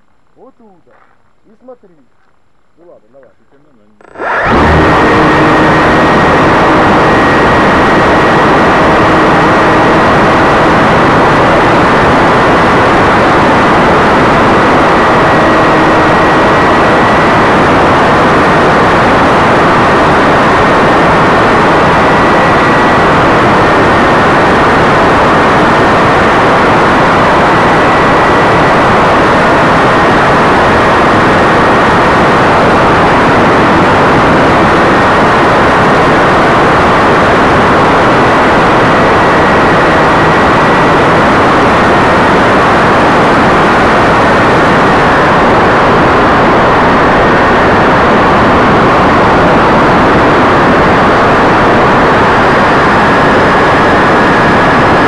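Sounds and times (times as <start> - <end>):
faint high whine: 0.0 - 55.0
model plane motor and propeller: 4.0 - 31.7.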